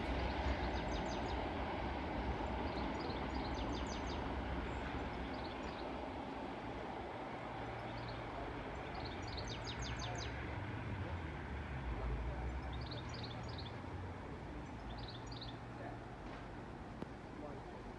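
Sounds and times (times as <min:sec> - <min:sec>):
distant diesel locomotive rumble: 0:00.0 - 0:17.9
bird chirping: 0:08.8 - 0:10.4, 0:14.6 - 0:15.6.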